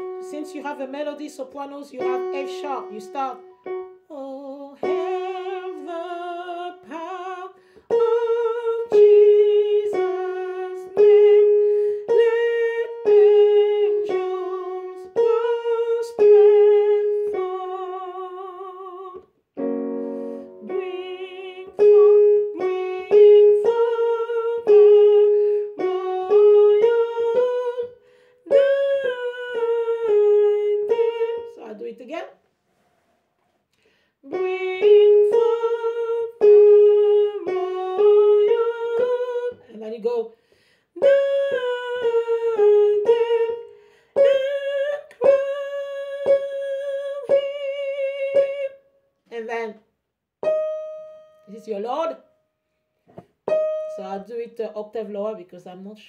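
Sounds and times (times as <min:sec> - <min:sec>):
keyboard notes: 0:00.0 - 0:04.2, 0:07.9 - 0:31.7, 0:34.3 - 0:39.6, 0:50.4 - 0:52.4, 0:53.5 - 0:54.4
woman singing a hymn: 0:00.0 - 0:19.8, 0:20.4 - 0:32.0, 0:34.2 - 0:40.3, 0:41.0 - 0:48.8.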